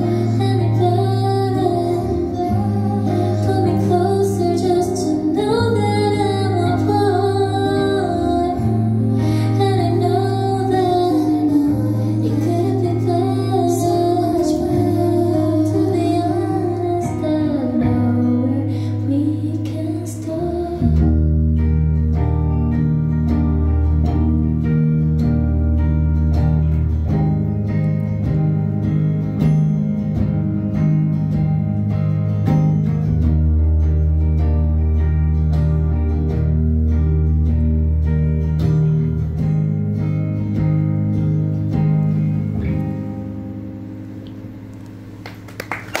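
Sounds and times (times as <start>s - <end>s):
woman singing: 0.0s - 21.6s
low chords and bass: 0.0s - 45.3s
electric guitar: 0.0s - 46.0s.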